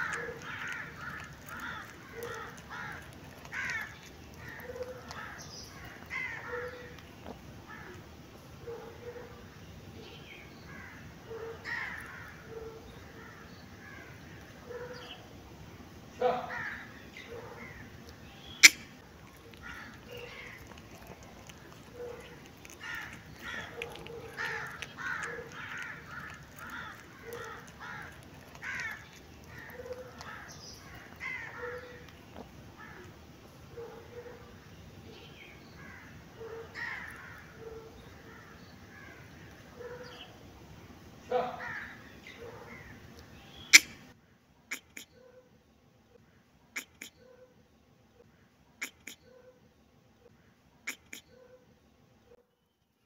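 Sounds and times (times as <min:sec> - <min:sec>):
birds calling harshly: 0:00.0 - 0:45.4, 0:46.3 - 0:47.5, 0:48.2 - 0:49.5, 0:50.3 - 0:52.0.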